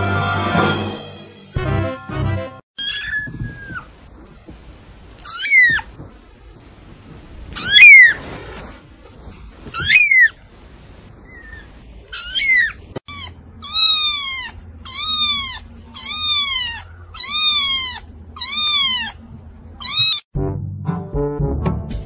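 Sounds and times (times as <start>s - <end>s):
kitten meowing: 2.8s - 3.9s, 5.2s - 5.9s, 7.6s - 8.2s, 9.8s - 10.3s, 11.3s - 19.2s, 19.8s - 20.2s.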